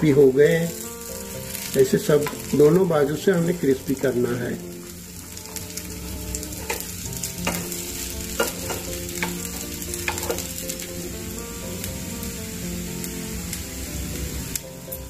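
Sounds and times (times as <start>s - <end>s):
food sizzling in hot oil: 0.0s - 15.0s
spatula knocking against pan: 7.4s - 9.4s.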